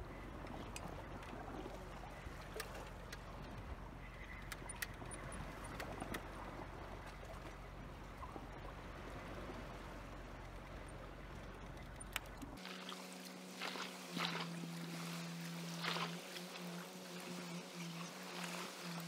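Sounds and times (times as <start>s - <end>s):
low steady rumble: 0.0s - 19.0s
water lapping against rocks: 11.3s - 19.0s.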